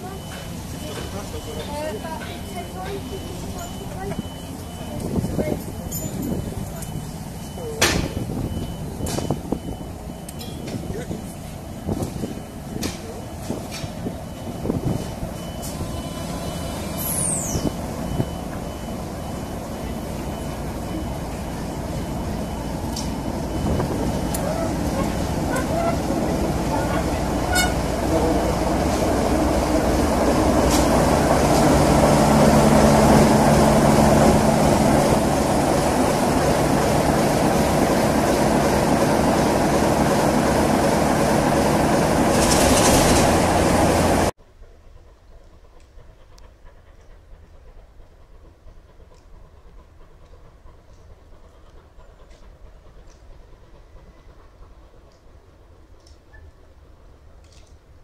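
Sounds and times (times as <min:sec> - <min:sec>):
diesel locomotive engine rumbling: 0:00.0 - 0:58.0
high falling squeal: 0:14.4 - 0:18.5.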